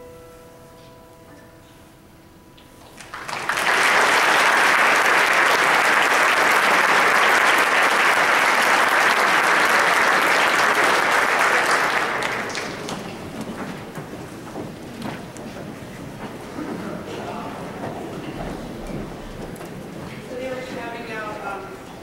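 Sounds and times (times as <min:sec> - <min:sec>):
audience applauding: 0:02.8 - 0:15.4.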